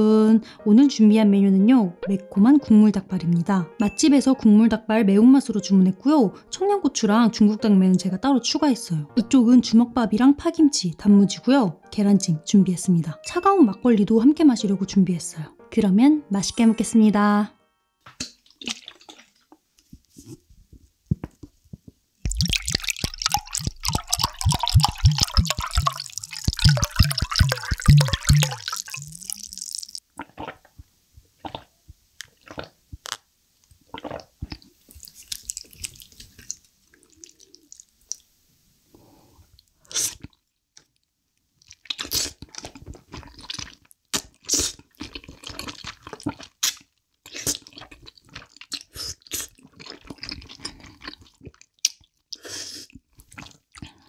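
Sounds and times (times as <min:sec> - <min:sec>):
sipping and swallowing: 0:22.2 - 0:30.8, 0:31.4 - 0:33.2, 0:33.9 - 0:38.2, 0:41.6 - 0:54.0
liquid glugging from bottle: 0:22.3 - 0:30.7, 0:31.4 - 0:31.7, 0:33.9 - 0:36.6
slurping and chewing: 0:22.3 - 0:30.8, 0:31.4 - 0:33.2, 0:33.8 - 0:38.3, 0:39.6 - 0:41.0, 0:41.6 - 0:54.0.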